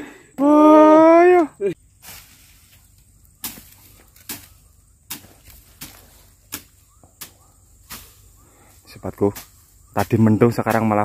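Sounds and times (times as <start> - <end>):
blade chopping through grass: 3.4 - 8.3.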